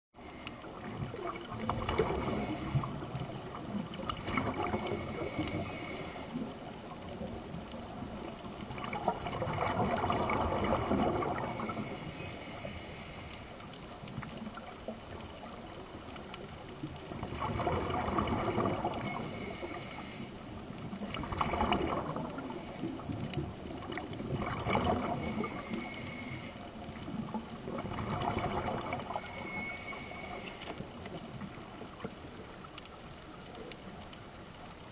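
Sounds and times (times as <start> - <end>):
steady hiss: 0.2 - 1.4, 2.0 - 3.5, 4.6 - 8.7, 11.3 - 14.5, 18.8 - 21.0, 22.2 - 24.0, 25.0 - 27.3, 28.9 - 34.8
muffled underwater rushing and bubbling: 0.2 - 34.9.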